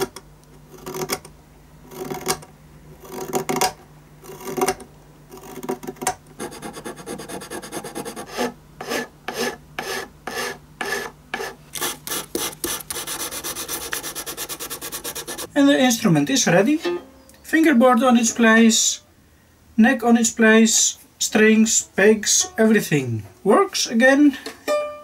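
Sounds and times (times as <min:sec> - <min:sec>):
filing and sanding wood: 0:03.0 - 0:15.5.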